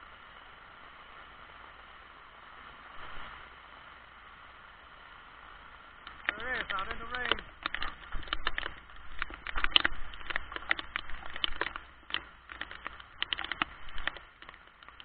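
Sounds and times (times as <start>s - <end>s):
raindrops tapping on camera: 5.5s - 15.0s.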